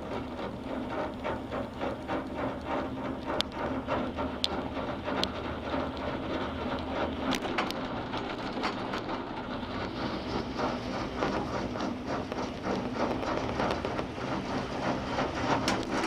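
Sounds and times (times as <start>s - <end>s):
gondola cabin rumble: 0.0s - 16.0s
clicks and rattles: 1.0s - 9.9s, 15.4s - 16.0s.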